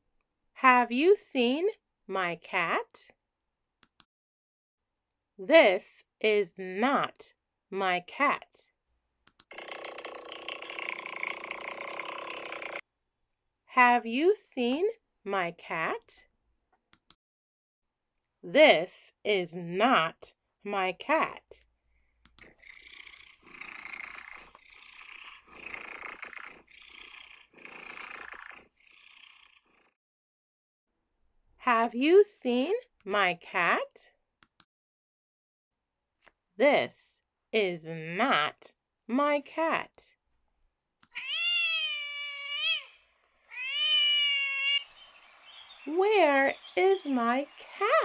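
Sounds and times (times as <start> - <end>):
cat purring: 22.4 - 30.0
cat meowing: 41.1 - 44.9.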